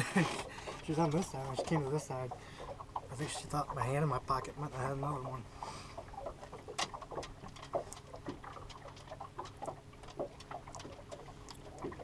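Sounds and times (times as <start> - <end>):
small things clicking and crinkling: 6.2 - 12.0.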